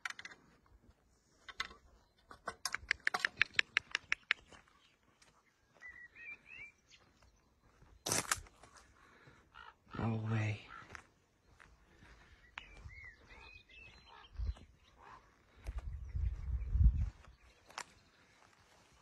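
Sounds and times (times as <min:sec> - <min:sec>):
sharp clicks: 0:01.5 - 0:04.5.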